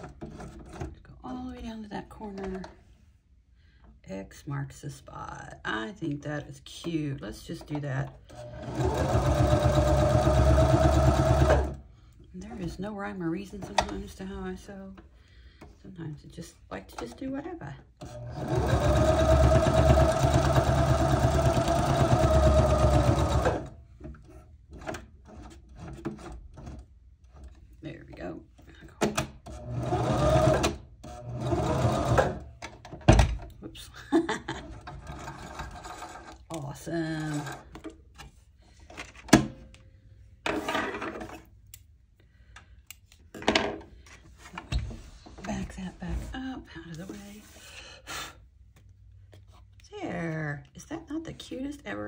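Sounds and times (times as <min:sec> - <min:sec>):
sewing machine stitching: 0:08.3 - 0:11.8, 0:18.0 - 0:23.8, 0:29.5 - 0:32.5, 0:34.6 - 0:36.4.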